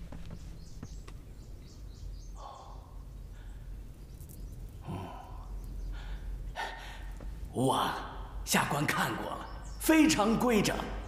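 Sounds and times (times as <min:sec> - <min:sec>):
faint bird chirps: 0:00.0 - 0:11.0.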